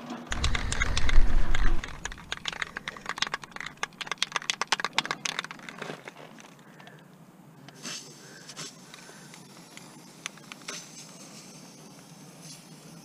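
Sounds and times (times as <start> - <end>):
brief low rumble: 0.3 - 2.5.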